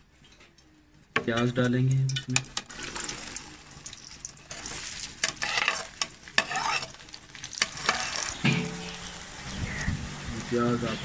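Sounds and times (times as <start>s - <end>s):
onions sizzling in hot oil: 2.2s - 11.0s.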